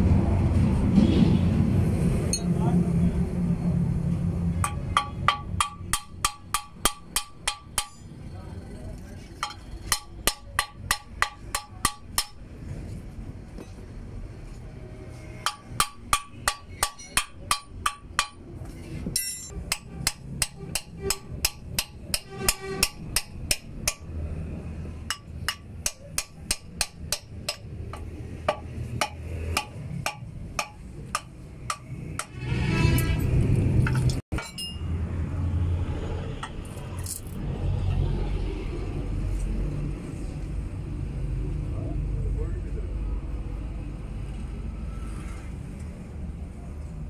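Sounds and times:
hammer striking steel: 4.6 - 8.1, 9.4 - 12.4, 15.4 - 18.5, 19.1 - 24.1, 25.1 - 33.2, 33.9 - 34.9.

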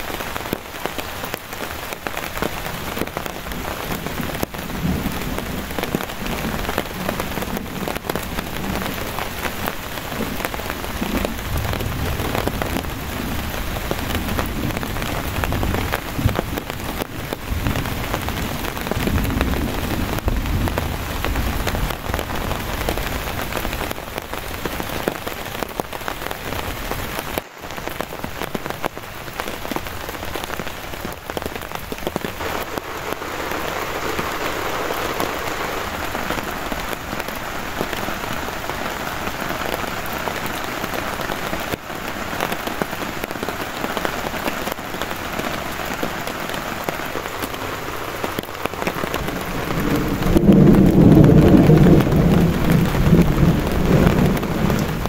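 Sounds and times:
heavy rain on a tarp: 0.0 - 55.0
distant thunder rumbling: 48.2 - 55.0.

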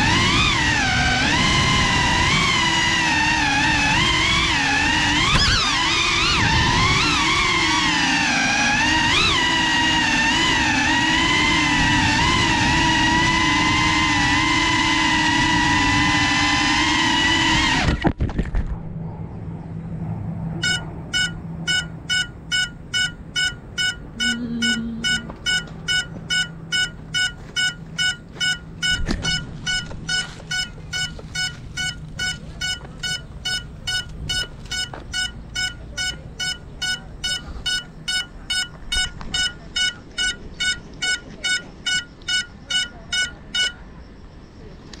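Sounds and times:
drone propellers whining: 0.0 - 18.1, 18.8 - 45.0
buzzer beeping: 20.6 - 44.0.

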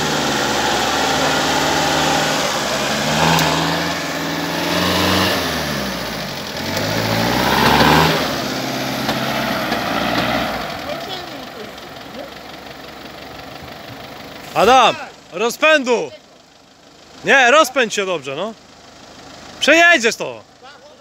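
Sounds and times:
engine revving: 0.0 - 12.4.

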